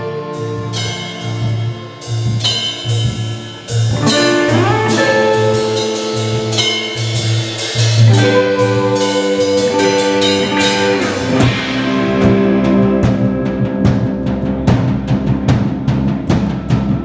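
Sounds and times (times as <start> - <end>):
bass guitar: 0.0 - 17.0
drum kit: 0.0 - 17.0
electric guitars: 0.0 - 17.0.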